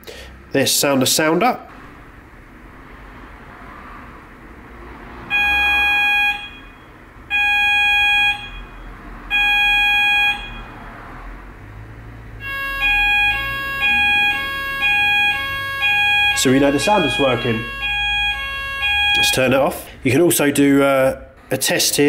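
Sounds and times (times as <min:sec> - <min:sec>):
fire alarm electronic tones: 0:05.3 - 0:10.8, 0:12.4 - 0:19.6.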